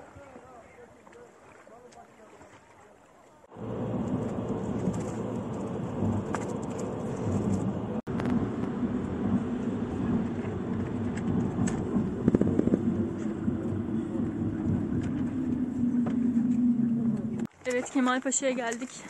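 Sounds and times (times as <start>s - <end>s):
bus engine and road rumble: 3.5s - 17.5s.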